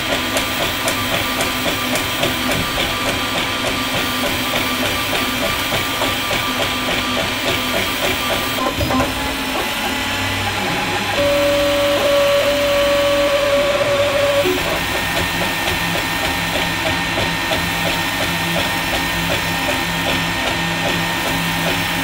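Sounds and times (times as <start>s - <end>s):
cooling fans hissing: 7.4s - 22.0s
stepper motors whining in tones: 8.3s - 22.0s.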